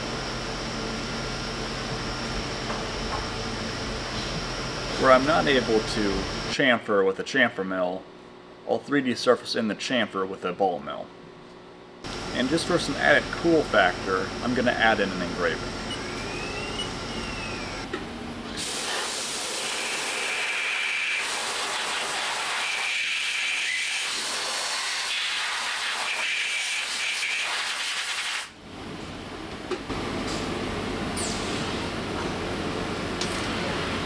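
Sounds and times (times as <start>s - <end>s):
machine tone rising and falling: 15.6s - 17.9s
spraying hiss in milling machine: 18.6s - 28.5s.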